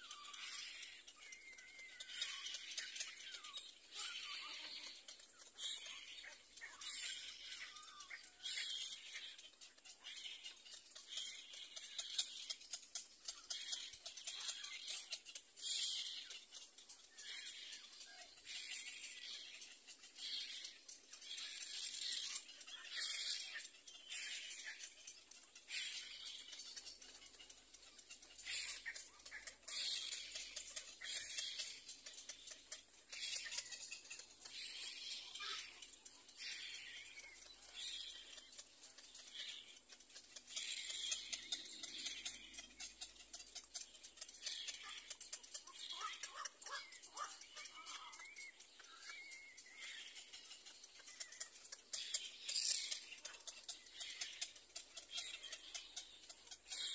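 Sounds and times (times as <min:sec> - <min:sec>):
chicks begging with raspy calls: 0:00.0 - 0:56.9
small clicks: 0:00.0 - 0:56.9
chicks raspy begging calls: 0:44.6 - 0:48.8.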